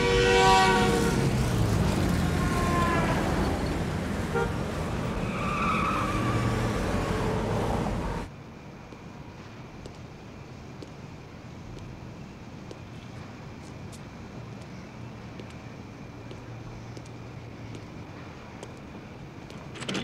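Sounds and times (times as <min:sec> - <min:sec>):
car horns honking: 0:00.0 - 0:06.5
heavy highway traffic: 0:00.0 - 0:20.0.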